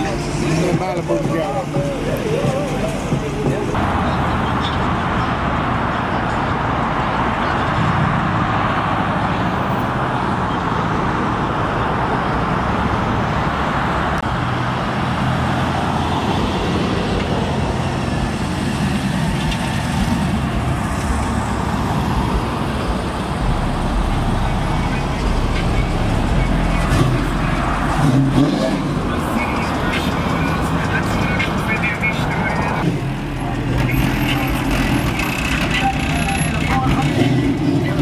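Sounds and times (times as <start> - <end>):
cars driving past: 0.0 - 38.0.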